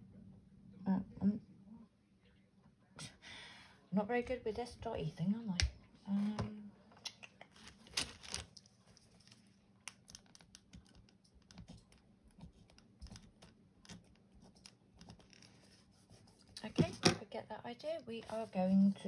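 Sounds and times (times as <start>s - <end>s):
light taps and clicks of stationery: 9.9s - 15.3s.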